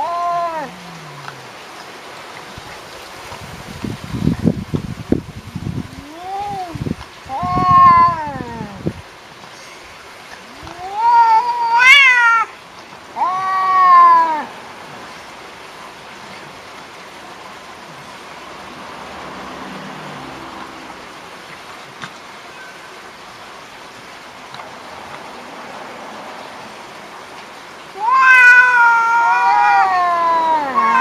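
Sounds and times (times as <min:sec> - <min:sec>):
cat yowling: 0:00.0 - 0:01.5, 0:06.0 - 0:08.8, 0:10.4 - 0:12.5, 0:13.1 - 0:14.5, 0:27.9 - 0:31.0
cat growling: 0:00.0 - 0:01.6, 0:28.0 - 0:31.0.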